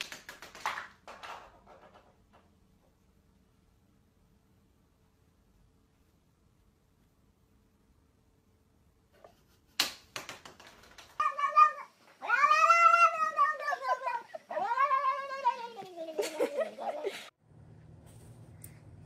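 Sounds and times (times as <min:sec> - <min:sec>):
cat yowling: 0:11.1 - 0:16.2.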